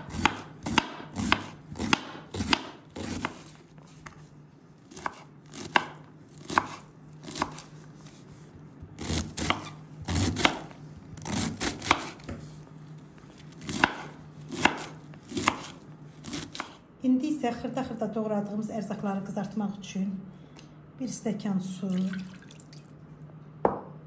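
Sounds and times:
knife chopping cabbage on board: 0.0s - 4.0s, 4.9s - 8.2s, 9.0s - 12.6s, 13.5s - 16.8s.

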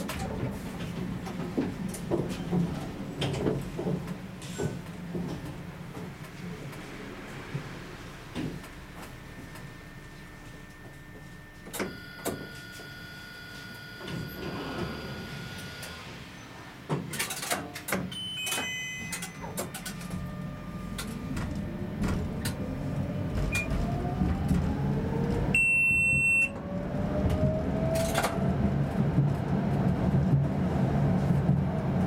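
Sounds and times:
tram rolling rumble: 0.0s - 32.0s
tram motor whine: 3.1s - 17.0s, 18.0s - 32.0s
steady beep: 25.6s - 26.6s.

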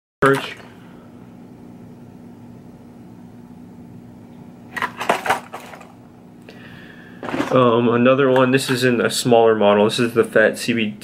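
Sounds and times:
steady low hum: 0.2s - 11.0s.

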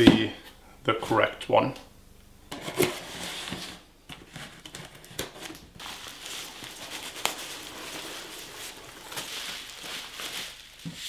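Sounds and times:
packing peanuts rustling: 4.6s - 11.0s
cardboard box scraping and knocks: 6.4s - 9.9s.

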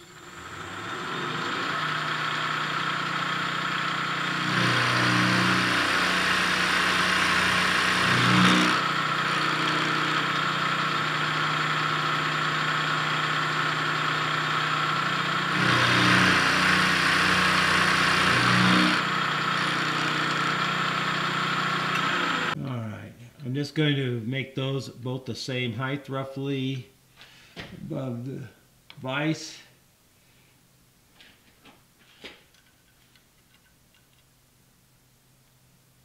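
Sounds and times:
milling machine cutting iron: 0.0s - 22.6s.

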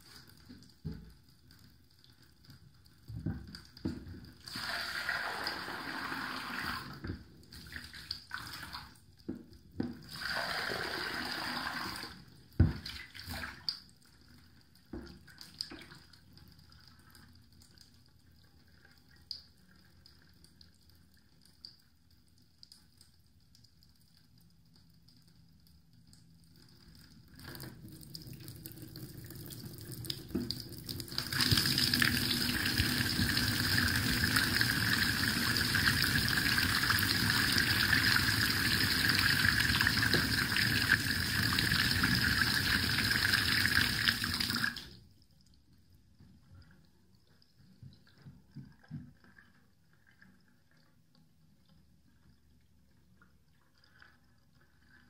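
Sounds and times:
water rushing down drain: 4.4s - 7.0s, 10.0s - 13.6s, 27.9s - 45.0s.

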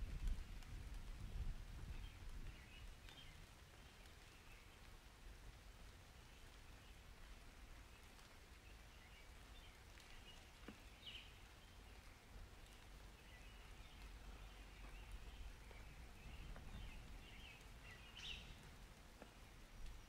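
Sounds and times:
soft rain patter: 0.0s - 20.0s
steady low rumble: 12.1s - 19.1s.

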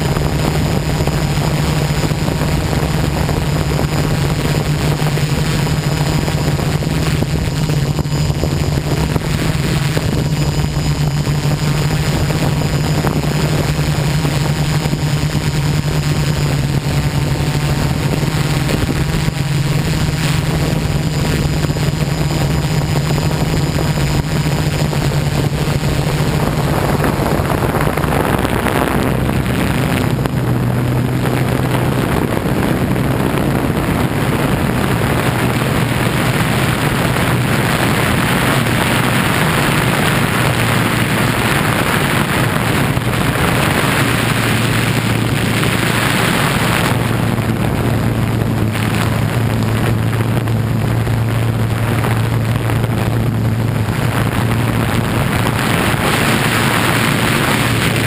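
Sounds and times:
drone propellers droning: 0.0s - 58.0s.

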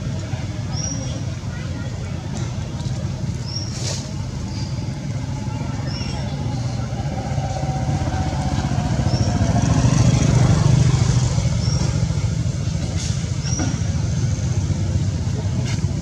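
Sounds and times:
vehicle engine passing: 4.8s - 15.8s.

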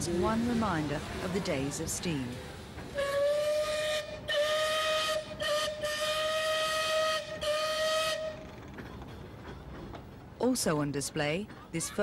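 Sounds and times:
steam whistle blasts: 3.0s - 8.4s.

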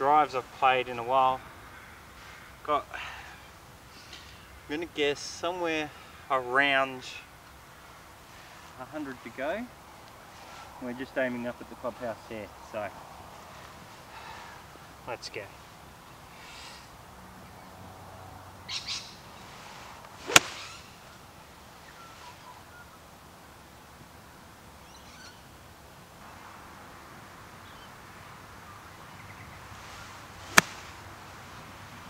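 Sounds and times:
golf club striking ball: 20.2s - 20.7s, 30.5s - 30.8s.

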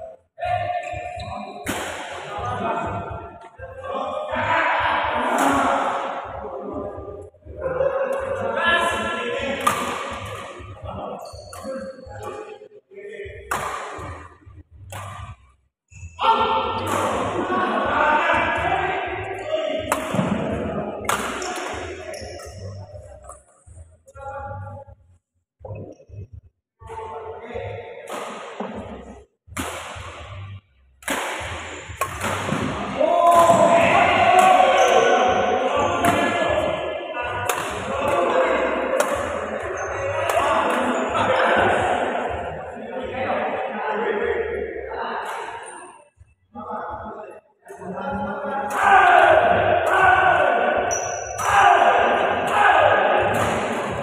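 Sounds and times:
racket striking shuttlecock: 1.6s - 2.2s, 9.6s - 10.5s, 13.5s - 14.0s, 21.0s - 21.7s, 29.6s - 30.2s, 31.0s - 33.7s, 37.4s - 38.1s, 39.0s - 39.4s.

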